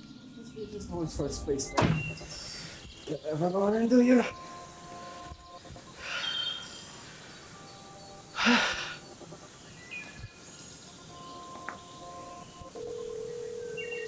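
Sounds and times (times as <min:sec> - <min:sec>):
faint music of held tones: 0:00.0 - 0:14.0
man breathing out heavily: 0:08.4 - 0:09.1.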